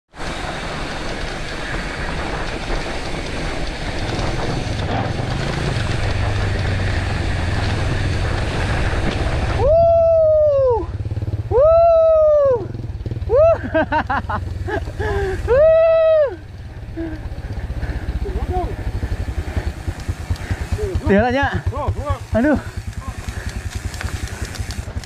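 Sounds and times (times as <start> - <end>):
bike tyres on dirt trail: 0.1 - 25.0
wind rush: 0.2 - 12.7.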